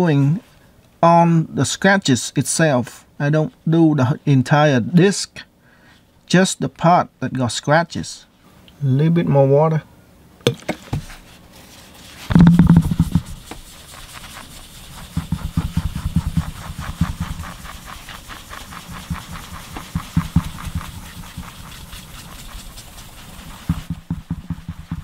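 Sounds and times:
rustle and knock: 10.5 - 25.0
paper towel scrubbing disc: 11.0 - 25.0.

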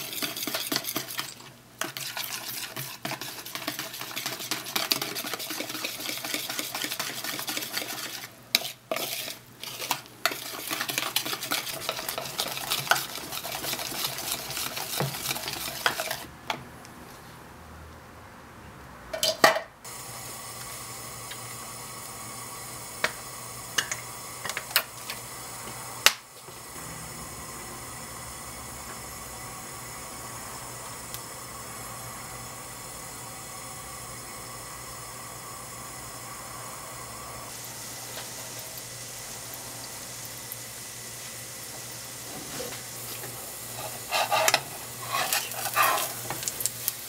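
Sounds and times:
whisk beating batter in bowl: 0.0 - 16.3, 43.7 - 46.5.

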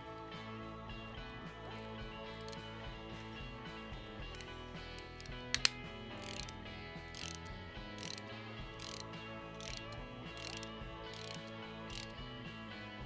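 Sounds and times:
background music: 0.0 - 13.0
hand ratchet clicking: 2.4 - 2.7, 4.3 - 12.2.

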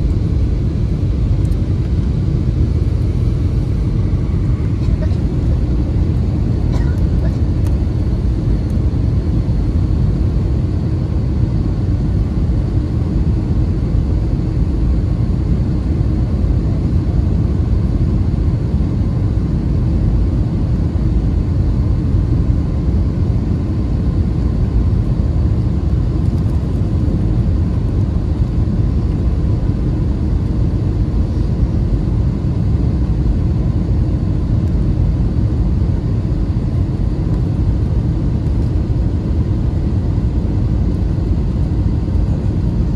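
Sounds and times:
aircraft cabin engine rumble: 0.0 - 42.9.

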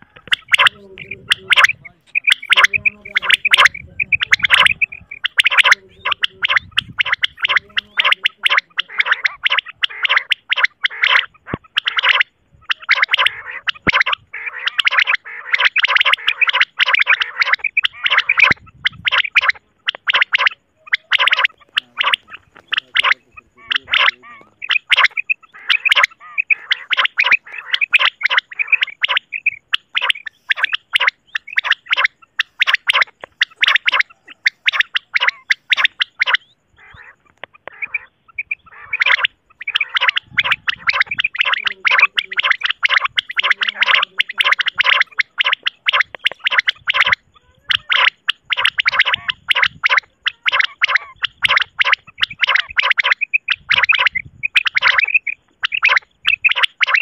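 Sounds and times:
quail calling: 0.0 - 57.0.

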